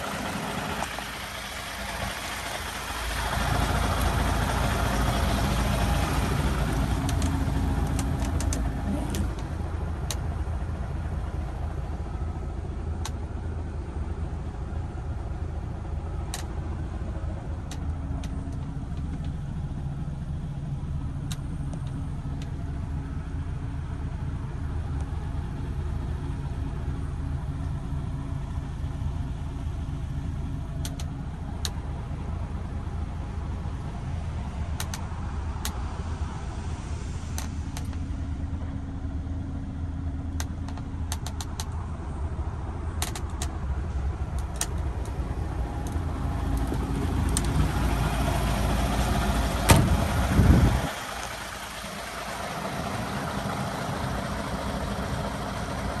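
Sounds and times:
diesel engine idling: 0:00.0 - 0:56.0
small clicks and knocks: 0:43.0 - 0:43.6
sharp knock and loud rumble: 0:49.6 - 0:50.7.

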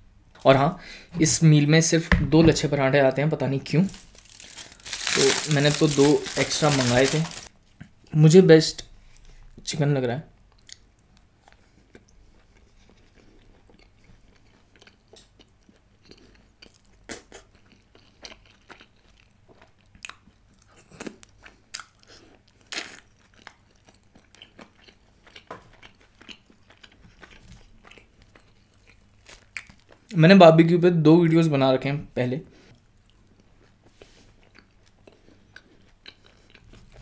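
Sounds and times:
person chewing and crunching: 0:03.8 - 0:07.5, 0:10.6 - 0:30.1, 0:33.0 - 0:37.0.

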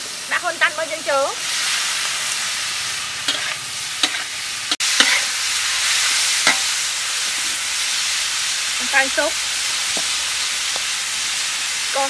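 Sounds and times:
meat sizzling in a wok: 0:00.0 - 0:12.0
metal spatula scraping a wok: 0:01.5 - 0:08.2.

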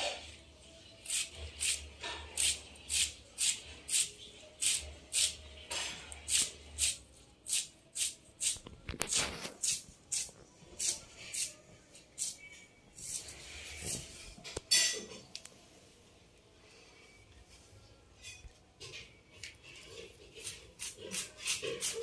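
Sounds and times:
knife shredding cabbage: 0:20.2 - 0:22.0.

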